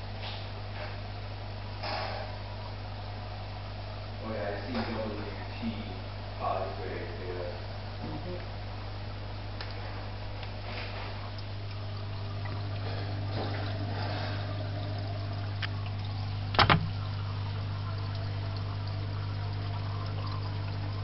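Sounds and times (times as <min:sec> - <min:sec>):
steady low hum: 0:00.0 - 0:21.0
water running and splashing: 0:09.7 - 0:21.0.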